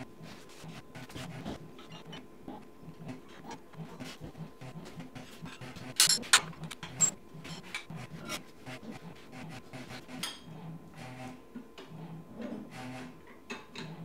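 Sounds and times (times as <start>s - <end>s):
tools and steel parts clinking: 6.0s - 7.2s.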